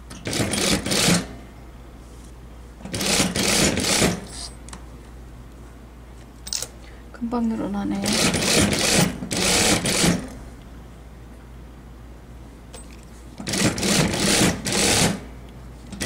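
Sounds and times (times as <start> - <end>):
sewing machine stitching: 2.9 - 4.2, 13.5 - 15.2.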